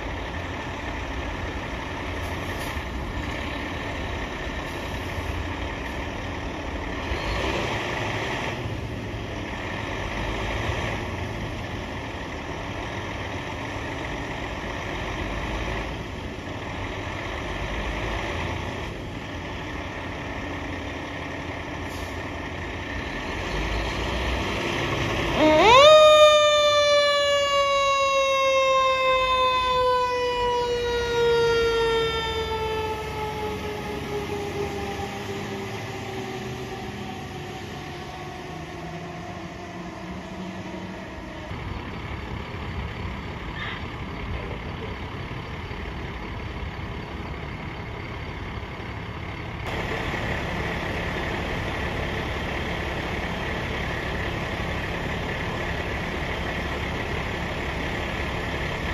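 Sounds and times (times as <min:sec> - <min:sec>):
truck engine running: 0:00.0 - 0:58.9
fire engine mechanical siren: 0:18.0 - 0:58.9.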